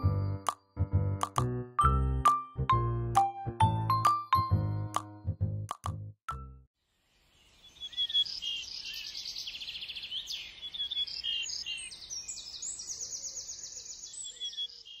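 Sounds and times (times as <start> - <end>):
songbirds chirping and trilling: 7.0 - 15.0.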